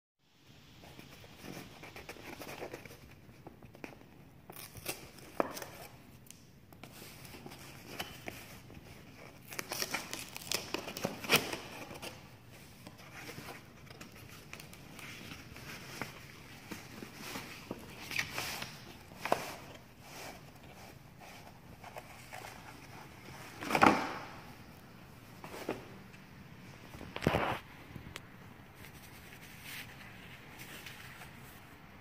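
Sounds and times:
paper rustling and crinkling: 6.8 - 26.2, 26.9 - 28.1
tissue paper rustling: 6.9 - 26.0.

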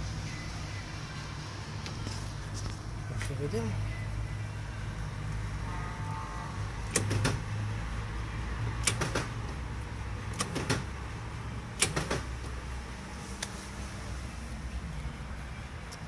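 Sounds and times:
door lock clicking: 6.9 - 7.4, 8.8 - 9.3, 11.8 - 12.3.

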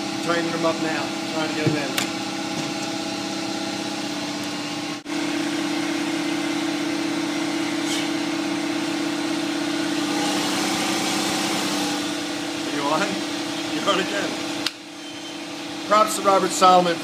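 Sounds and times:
motor humming: 0.0 - 16.0.

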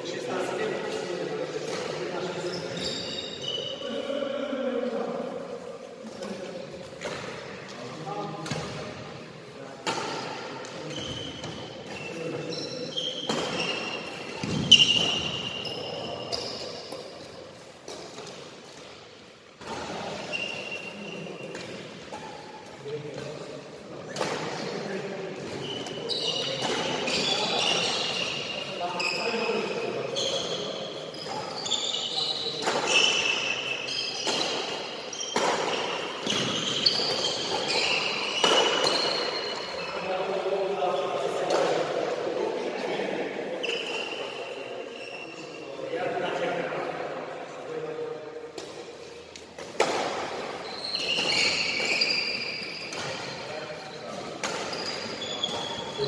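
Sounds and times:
shoes squeaking on court: 0.9 - 4.2, 9.9 - 19.0, 19.6 - 23.4, 25.4 - 41.8, 43.5 - 45.7, 48.6 - 56.0
racket hitting shuttlecock: 9.8 - 12.1, 13.2 - 15.6, 24.1 - 28.4, 32.6 - 33.5, 34.2 - 39.7, 48.5 - 53.5, 54.2 - 56.0.

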